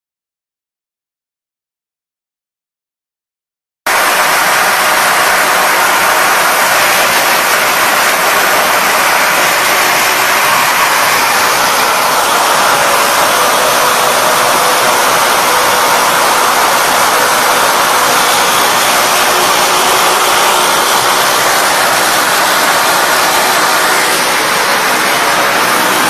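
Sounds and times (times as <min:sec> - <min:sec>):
machinery hissing noise: 0:03.9 - 0:26.0.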